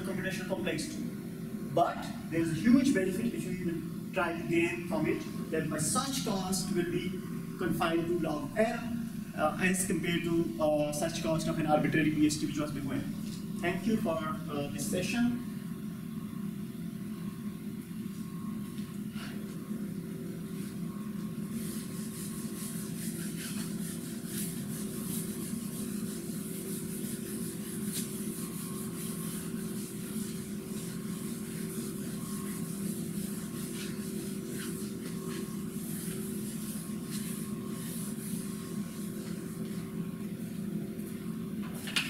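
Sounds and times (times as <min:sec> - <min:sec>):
low room hum: 0:00.0 - 0:42.0
eraser wiping whiteboard: 0:04.4 - 0:15.2, 0:20.5 - 0:40.6.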